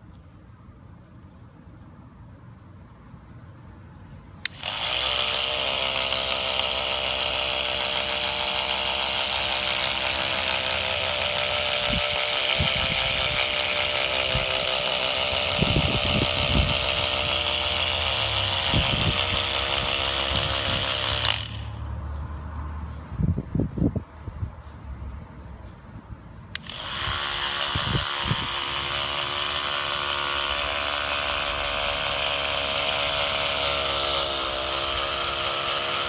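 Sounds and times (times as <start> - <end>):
power tool motor running: 4.4 - 21.9, 26.5 - 36.0.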